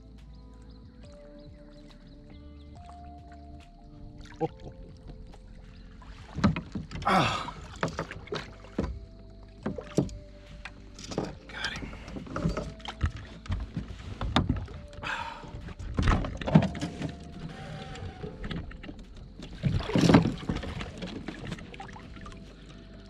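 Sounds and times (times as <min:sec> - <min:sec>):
knocks and thumps against kayak: 0:06.1 - 0:22.4.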